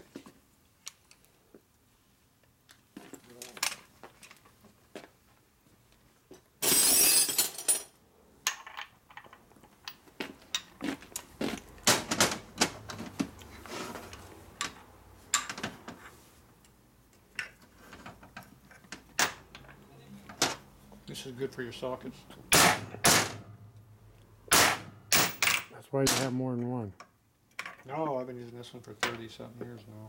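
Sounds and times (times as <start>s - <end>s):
metal tools clinking on workbench: 6.6s - 10.7s.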